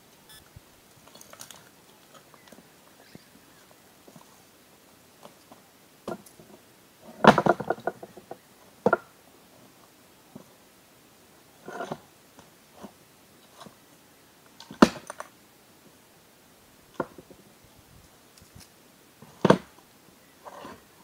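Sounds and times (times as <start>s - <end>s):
scraping and rustling of stone: 0.8s - 4.5s, 11.6s - 12.1s, 20.4s - 21.0s.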